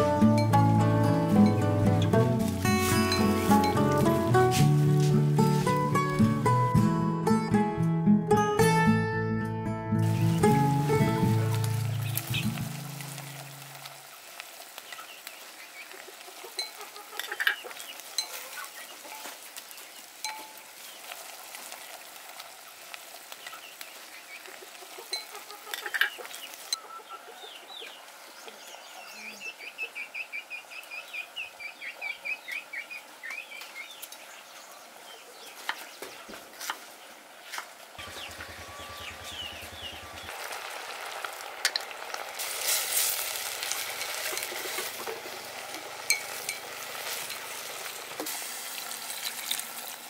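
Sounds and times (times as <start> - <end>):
simmer and fire hiss: 10.0 - 26.8
chickens clucking: 14.8 - 19.9, 23.4 - 34.2, 35.1 - 40.3, 43.8 - 48.2.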